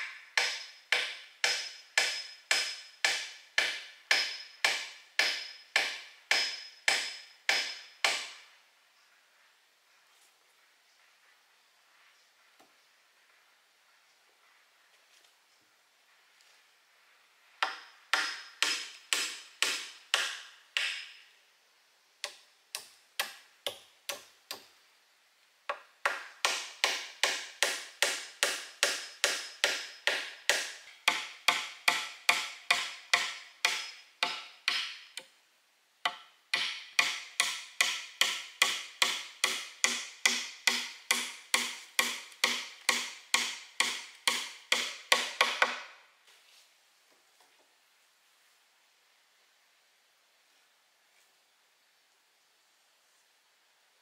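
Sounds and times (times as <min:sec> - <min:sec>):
wood being chopped: 0:36.1 - 0:45.9.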